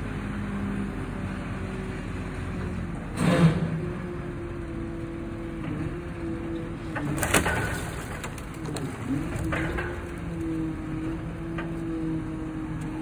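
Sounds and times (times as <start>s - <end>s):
branches cracking: 7.0s - 10.5s.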